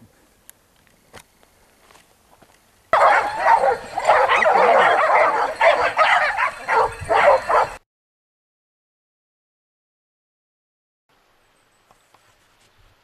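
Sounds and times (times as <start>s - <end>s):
hounds barking and yelping: 3.0s - 7.8s.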